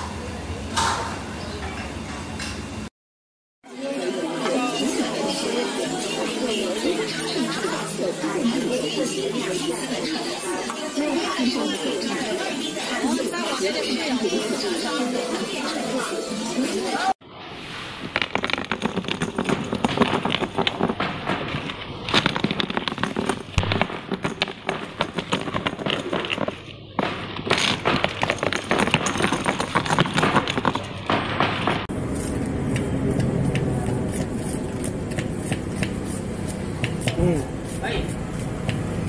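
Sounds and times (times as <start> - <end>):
knife chopping onions: 33.5 - 39.0.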